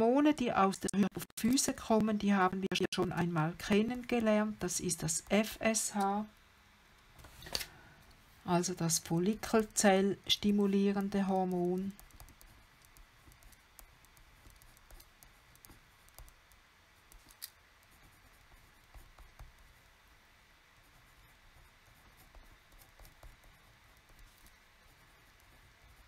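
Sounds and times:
pen scratching on paper: 0:10.3 - 0:16.4, 0:17.1 - 0:19.9, 0:20.8 - 0:26.0.

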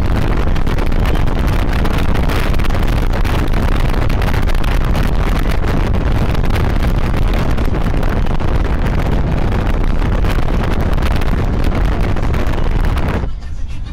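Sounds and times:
wind buffeting microphone: 0:00.0 - 0:13.3
road vehicle rumble: 0:00.0 - 0:13.9.

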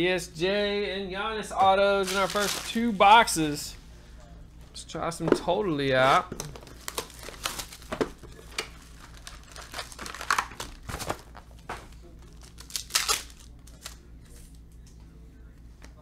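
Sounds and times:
foil wrappers crinkling and tearing: 0:02.0 - 0:03.3, 0:06.0 - 0:14.6.

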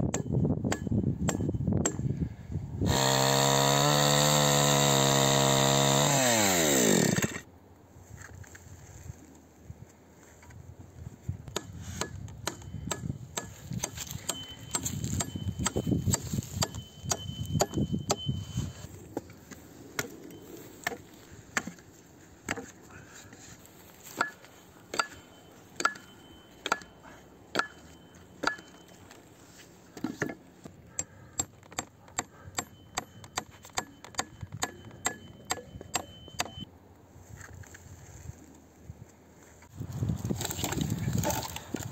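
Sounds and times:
hatchet chopping wood: 0:00.1 - 0:02.1, 0:02.9 - 0:07.4, 0:11.5 - 0:18.3, 0:20.8 - 0:21.8, 0:22.4 - 0:22.7, 0:25.8 - 0:26.9, 0:27.5 - 0:28.8, 0:31.0 - 0:36.6.

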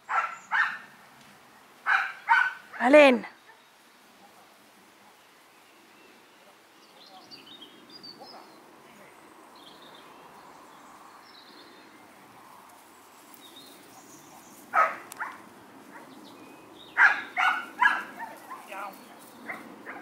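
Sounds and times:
faint birdsong: 0:00.0 - 0:20.0
dog barking: 0:00.1 - 0:00.9, 0:01.8 - 0:02.8, 0:08.2 - 0:08.6, 0:14.7 - 0:16.1, 0:17.0 - 0:18.8, 0:19.4 - 0:20.0.

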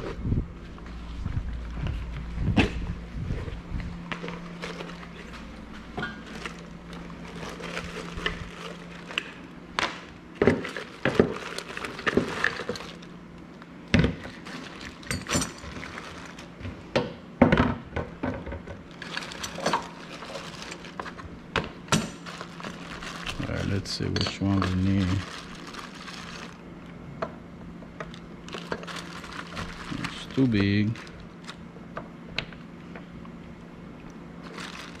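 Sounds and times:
low steady hum: 0:00.0 - 0:35.0
hand tools clunking and clinking: 0:24.0 - 0:24.8.

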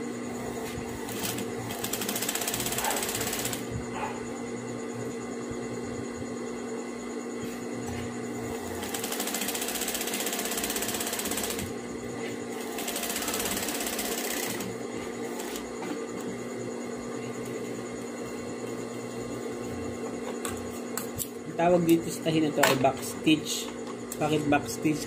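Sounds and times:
steady hum: 0:00.0 - 0:25.0
sewing machine stitching: 0:01.0 - 0:03.6, 0:08.8 - 0:11.8, 0:12.6 - 0:14.7.

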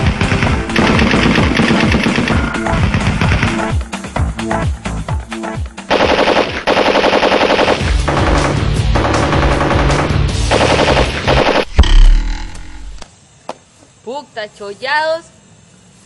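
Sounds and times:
machine-gun fire: 0:00.0 - 0:03.7, 0:05.9 - 0:13.0
loud bang: 0:11.6 - 0:13.0.

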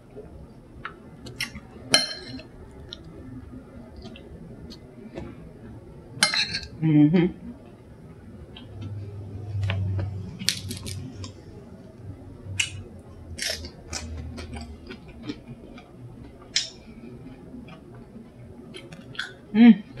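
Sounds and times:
low hum: 0:00.0 - 0:20.0
chewing tortilla chips: 0:10.0 - 0:11.3, 0:13.4 - 0:16.8.

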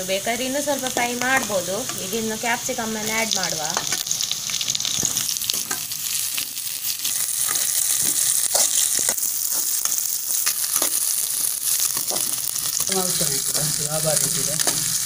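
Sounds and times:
vegetables sizzling in oil: 0:00.0 - 0:15.0
metal spoon scraping pan: 0:14.2 - 0:15.0.

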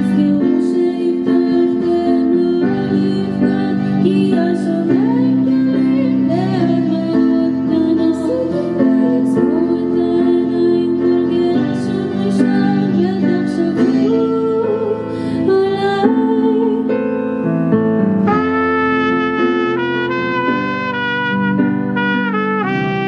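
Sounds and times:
electric guitar: 0:00.0 - 0:23.0
keyboard: 0:00.0 - 0:23.0
trumpet held notes: 0:18.3 - 0:23.0.

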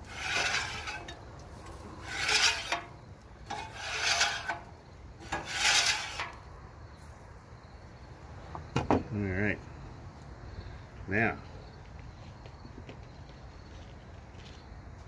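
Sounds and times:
metal scraper rasping on griddle: 0:00.0 - 0:06.4.

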